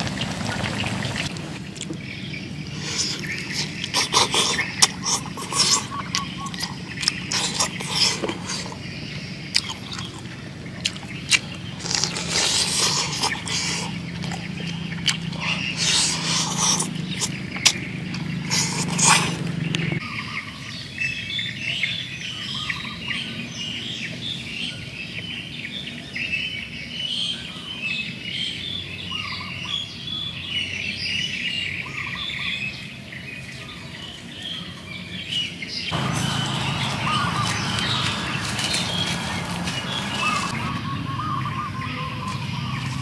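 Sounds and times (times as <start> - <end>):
birds chirping: 0.0 - 43.0
close-up eating clicks: 1.3 - 2.0, 2.8 - 20.0.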